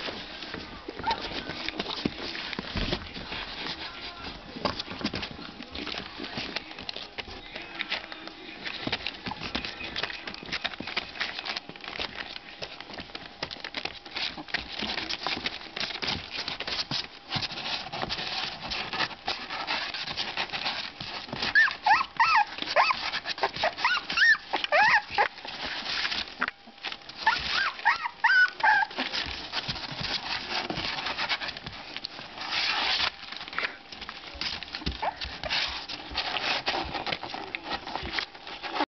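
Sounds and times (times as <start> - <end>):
puppies whimpering and yelping: 0.0 - 2.5, 18.0 - 31.7, 34.8 - 38.8
claws scratching and scrabbling: 0.0 - 38.9.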